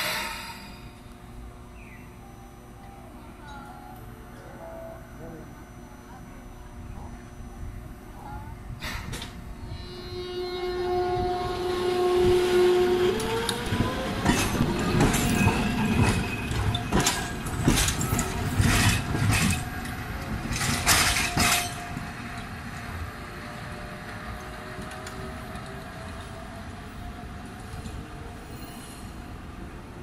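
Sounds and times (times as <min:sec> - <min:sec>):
tram wheels clacking over rails: 0:12.6 - 0:26.6.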